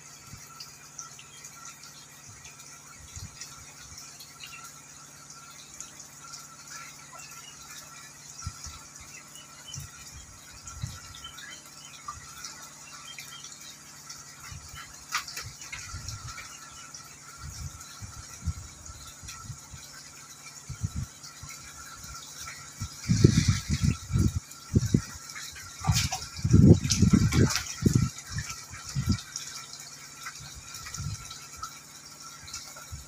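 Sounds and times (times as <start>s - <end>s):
fish splashing at water surface: 11.4s - 17.2s.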